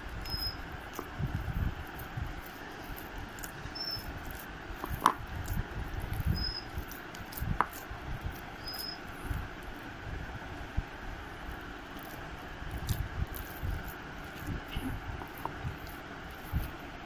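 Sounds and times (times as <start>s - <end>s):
dough kneaded in a bowl: 0.0s - 17.0s
faint high chirp: 0.2s - 0.6s, 3.7s - 4.1s, 6.3s - 6.7s, 8.6s - 9.0s.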